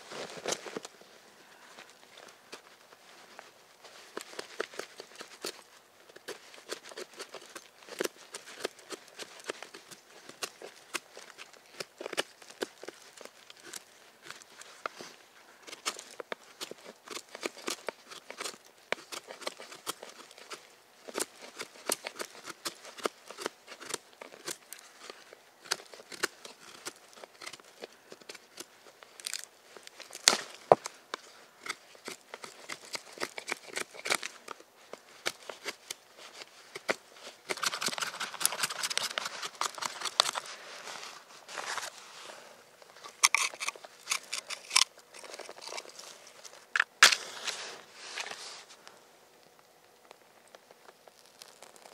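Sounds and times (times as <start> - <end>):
knife scraping wood: 31.6 - 34.5, 35.1 - 42.0, 43.0 - 48.4.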